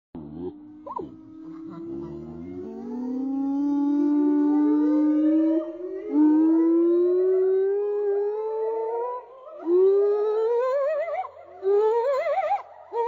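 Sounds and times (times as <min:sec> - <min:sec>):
gibbon hooting: 0:00.4 - 0:06.9.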